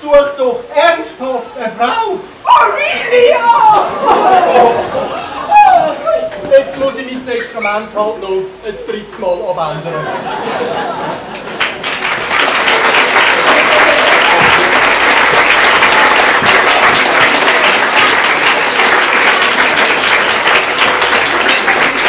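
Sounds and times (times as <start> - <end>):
audience applauding: 11.1 - 22.0.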